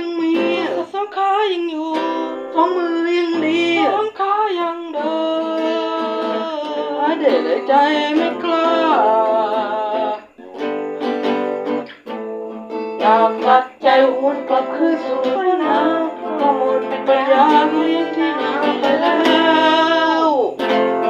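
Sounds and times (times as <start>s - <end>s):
boy singing: 0.0s - 10.4s, 12.7s - 21.0s
acoustic guitar strumming: 0.0s - 21.0s.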